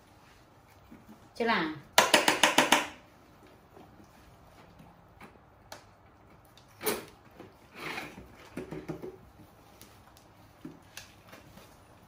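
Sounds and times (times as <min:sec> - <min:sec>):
knocks on hollow plastic chairs: 0:02.0 - 0:03.0.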